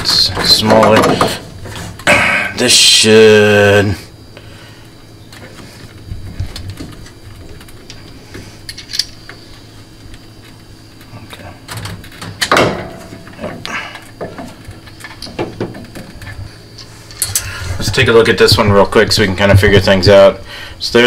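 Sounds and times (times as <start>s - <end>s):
metal clunk: 0.0s - 2.4s, 11.7s - 16.3s
steady low hum: 0.0s - 21.0s
metal parts clicking and knocking: 8.7s - 9.2s.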